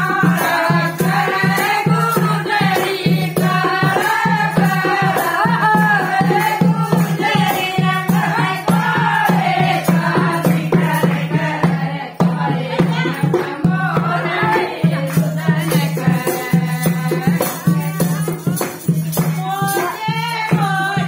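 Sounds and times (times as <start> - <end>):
folk dance song singing: 0.0 - 21.0
jingling rattle percussion: 0.0 - 21.0
steady drum beat: 0.0 - 21.0.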